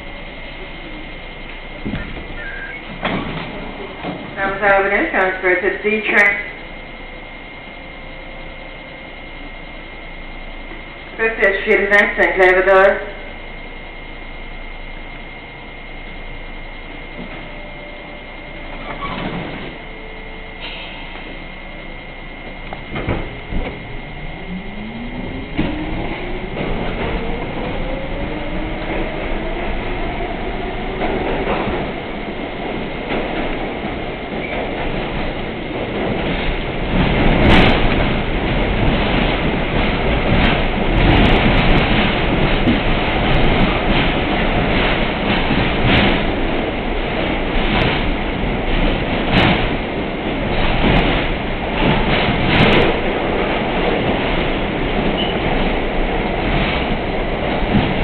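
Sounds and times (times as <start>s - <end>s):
subway car rumbling: 0.0s - 58.0s
subway traction motors whining: 0.0s - 58.0s.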